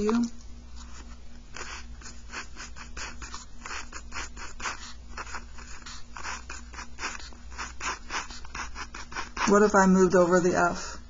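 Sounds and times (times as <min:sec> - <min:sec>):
faint steady hum: 0:00.0 - 0:11.0
pen scratching on paper: 0:00.8 - 0:10.6.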